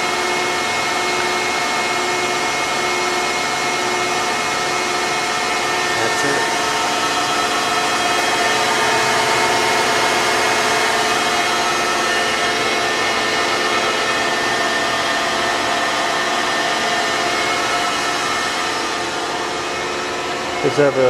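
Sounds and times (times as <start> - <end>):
machine hum with whining tones: 0.0 - 21.0.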